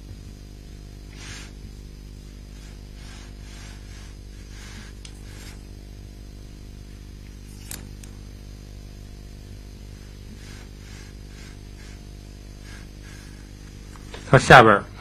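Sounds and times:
low electrical hum: 0.0 - 15.0.

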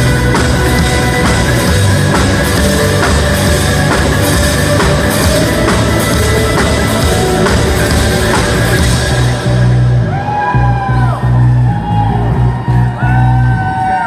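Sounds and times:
drum kit beat: 0.0 - 10.4
bass guitar: 0.0 - 14.0
electric guitar: 0.0 - 14.0.

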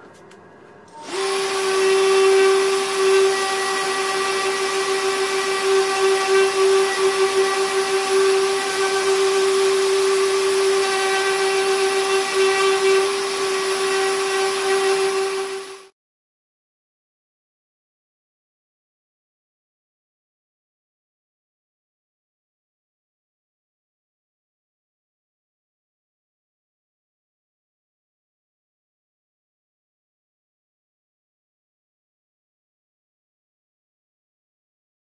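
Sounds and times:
orbital sander on wood: 1.0 - 15.9.

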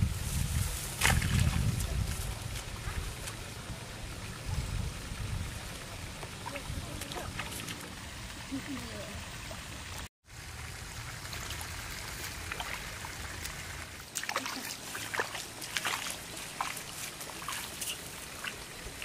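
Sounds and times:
footsteps wading through water: 0.5 - 3.5, 6.1 - 8.7, 11.2 - 19.0.

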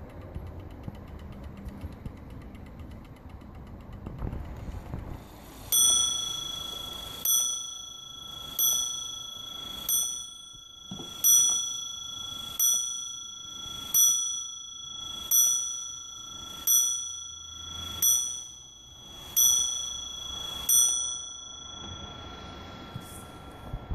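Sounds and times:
clock hammer striking bell: 5.4 - 23.9.

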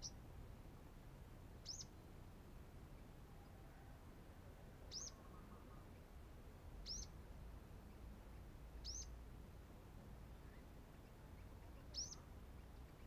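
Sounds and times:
sunbird chirping: 0.0 - 0.7, 1.6 - 2.2, 4.8 - 6.2, 6.8 - 9.2, 10.2 - 13.0.

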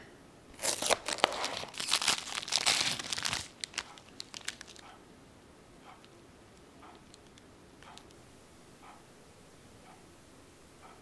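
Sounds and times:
foil wrapper crinkling: 0.6 - 4.8.

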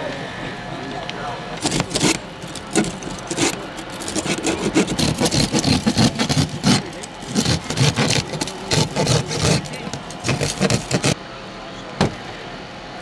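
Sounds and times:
hydraulic rescue cutter: 1.6 - 11.2.

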